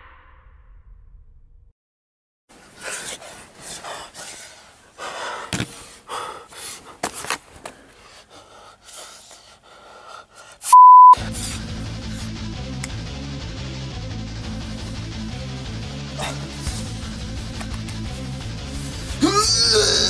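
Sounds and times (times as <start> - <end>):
man panting and gasping: 2.5 - 12.5, 16.0 - 20.0
high steady beep: 10.7 - 11.2.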